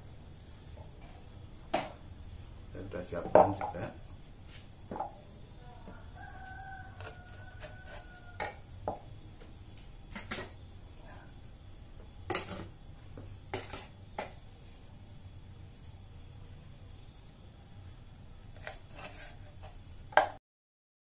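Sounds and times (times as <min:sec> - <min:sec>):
rooster crowing: 0:05.6 - 0:09.0.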